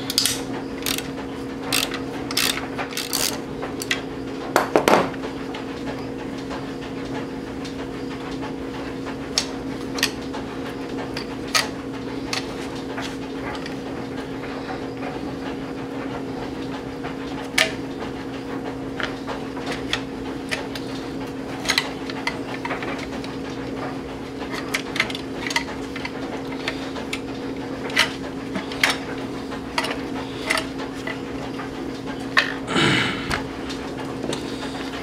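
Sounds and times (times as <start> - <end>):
steady low hum: 8.6 - 35.0.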